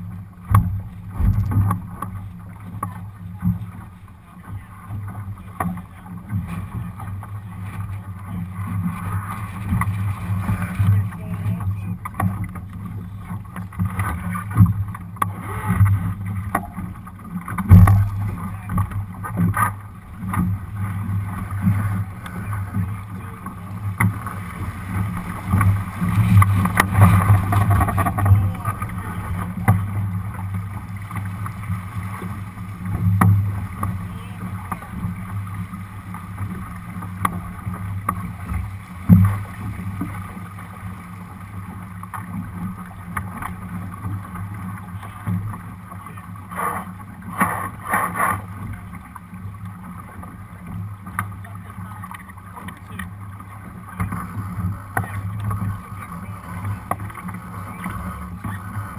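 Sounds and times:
knocks and thumps on boat: 0:00.0 - 0:40.5
water slapping along hull: 0:00.0 - 0:58.9.

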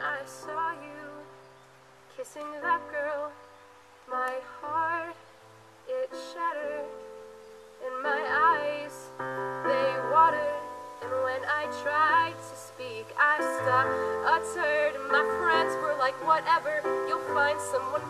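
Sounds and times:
woman singing with vibrato: 0:00.0 - 0:01.4, 0:02.2 - 0:03.4, 0:04.1 - 0:05.2, 0:05.8 - 0:07.0, 0:07.8 - 0:18.0.

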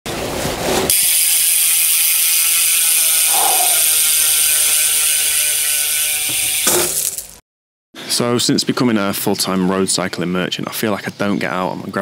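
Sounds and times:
bicycle freehub ratchet buzzing: 0:00.9 - 0:07.3.

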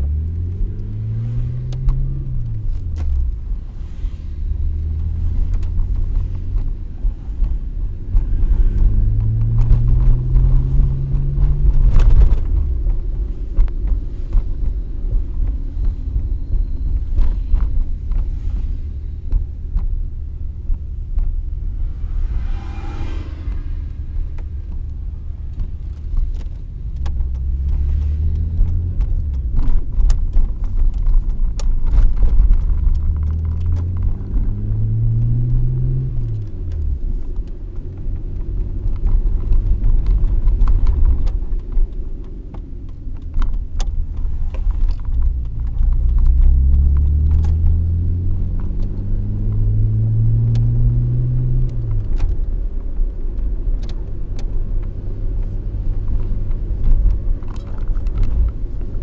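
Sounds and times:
car engine accelerating: 0:00.0 - 0:59.0
road rumble inside car: 0:00.0 - 0:59.0
light rattling clicks: 0:51.6 - 0:59.0.

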